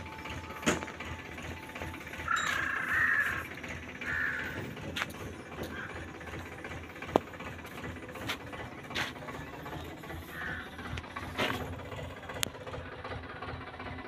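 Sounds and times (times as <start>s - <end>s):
diesel engine idling: 0.0s - 14.0s
sharp clicks and knocks: 6.4s - 10.0s.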